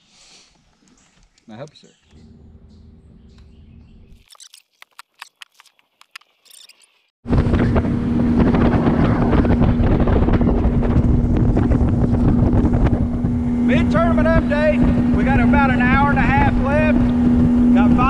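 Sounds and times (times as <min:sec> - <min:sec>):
outboard motor running: 0:07.3 - 0:18.0
wind buffeting microphone: 0:07.3 - 0:18.0.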